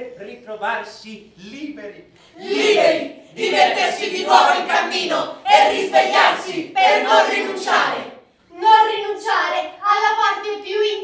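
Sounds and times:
voices singing together: 0:02.3 - 0:08.3.

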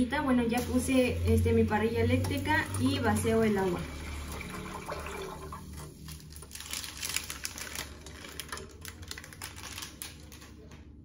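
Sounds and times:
dry spaghetti strands clicking: 0:06.0 - 0:10.8.

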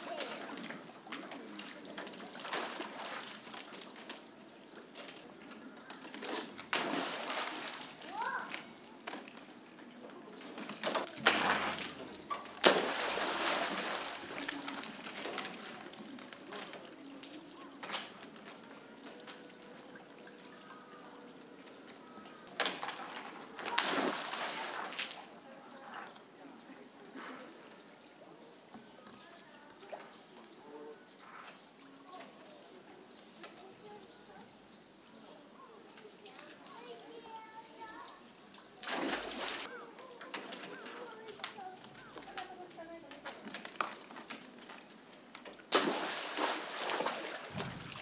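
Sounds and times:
water splashing and dripping: 0:00.0 - 0:25.4, 0:36.3 - 0:48.0
splashing water: 0:06.6 - 0:08.6, 0:10.7 - 0:15.9, 0:22.7 - 0:25.4, 0:38.7 - 0:39.8, 0:45.6 - 0:48.0
monkeys splashing into water: 0:06.7 - 0:08.2, 0:11.1 - 0:15.0, 0:23.6 - 0:25.2, 0:38.8 - 0:39.7, 0:45.7 - 0:48.0
sharp loud splash: 0:06.8 - 0:07.8, 0:12.6 - 0:14.0, 0:45.7 - 0:48.0.

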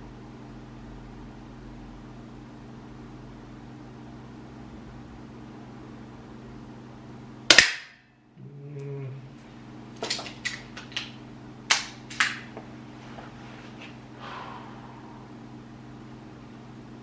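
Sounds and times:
steady low hum: 0:00.0 - 0:17.0
soft rustle: 0:12.9 - 0:14.4.

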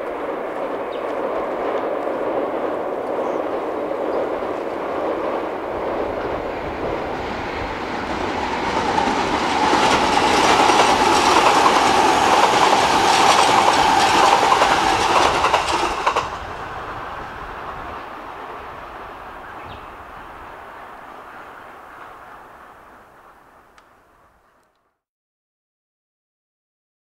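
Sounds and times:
electric train crossing bridge: 0:00.0 - 0:24.8
wheels clacking over rails: 0:00.1 - 0:16.5.

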